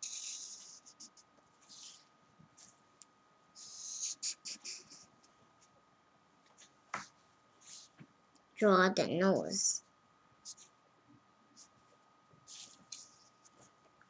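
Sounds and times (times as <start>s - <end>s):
marker scratching on paper: 0.0s - 2.8s, 3.6s - 5.1s, 6.5s - 8.0s, 10.4s - 10.8s, 12.5s - 13.7s.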